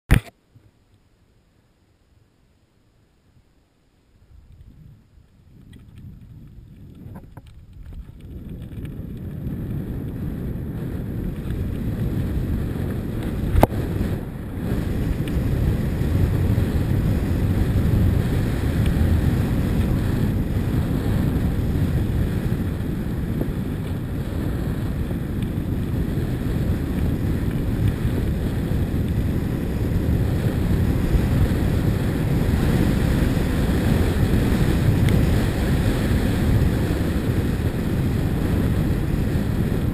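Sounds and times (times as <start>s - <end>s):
wind buffeting microphone: 4.3s - 39.9s.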